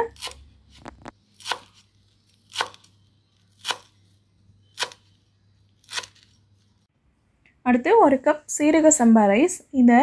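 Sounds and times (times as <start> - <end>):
knife chopping on wooden board: 1.4 - 1.8, 2.5 - 2.9.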